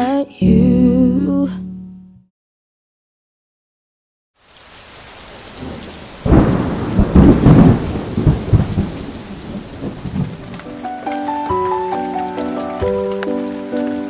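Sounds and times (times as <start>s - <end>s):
steady rain: 4.4s - 14.0s
thunder rumbling: 5.6s - 11.7s.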